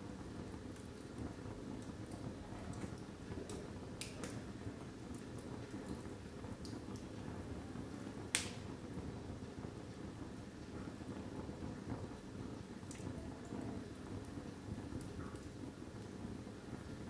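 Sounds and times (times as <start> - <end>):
fire flame rushing: 0.0 - 17.0
wood crackling: 8.3 - 8.6.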